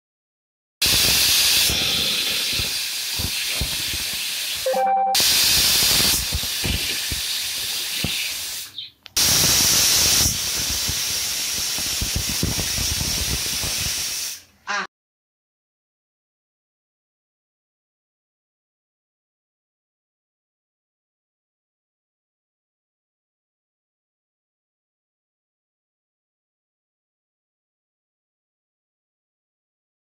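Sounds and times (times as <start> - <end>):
pressure cooker steam hissing: 0.8 - 14.5.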